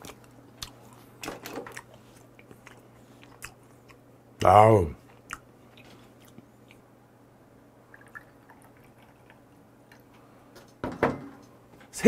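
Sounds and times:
liquor pouring into shot glass: 0:07.9 - 0:09.2.

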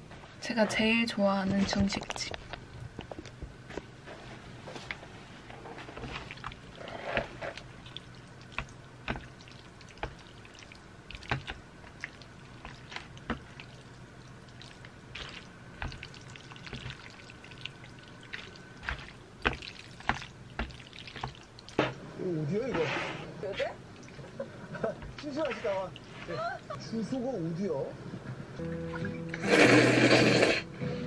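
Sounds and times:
chopsticks stirring noodles in sauce: 0:05.8 - 0:21.8
sticky wet squelching: 0:05.8 - 0:21.9.

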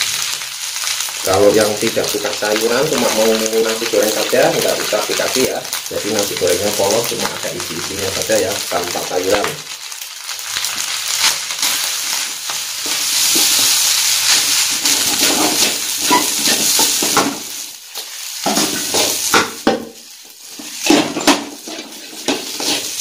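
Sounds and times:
food sizzling in a wok: 0:00.0 - 0:23.0
wooden spatula scraping a pan: 0:10.6 - 0:23.0.

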